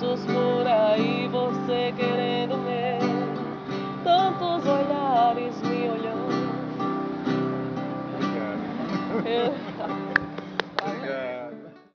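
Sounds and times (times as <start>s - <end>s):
woman singing: 0.0s - 6.9s, 9.2s - 9.6s
acoustic guitar strumming: 0.0s - 11.9s.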